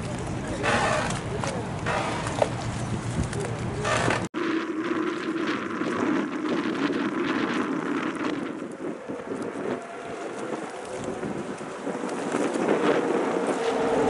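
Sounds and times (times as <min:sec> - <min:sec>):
boat engine running: 0:00.0 - 0:04.3, 0:07.8 - 0:14.0
wind buffeting microphone: 0:00.0 - 0:14.0.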